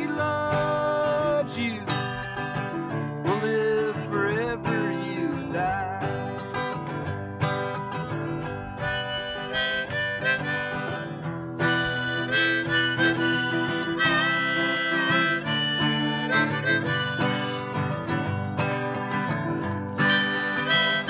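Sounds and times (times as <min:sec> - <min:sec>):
harmonica solo: 0:00.0 - 0:21.0
strummed acoustic guitar: 0:00.0 - 0:21.0.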